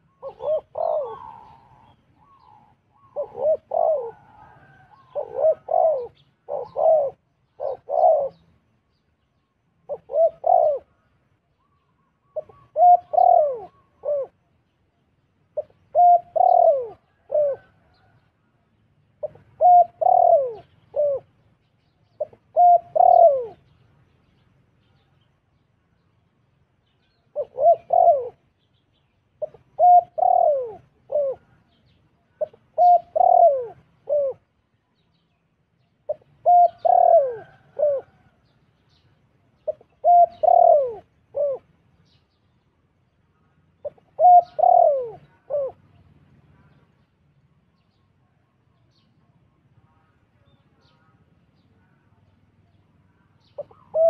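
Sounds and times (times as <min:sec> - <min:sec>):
dove cooing: 0:00.0 - 0:08.6, 0:09.8 - 0:14.5, 0:15.5 - 0:18.2, 0:19.2 - 0:21.5, 0:22.1 - 0:23.8, 0:27.1 - 0:28.7, 0:29.4 - 0:34.6, 0:36.1 - 0:38.5, 0:39.6 - 0:42.2, 0:43.4 - 0:47.0, 0:53.2 - 0:54.0.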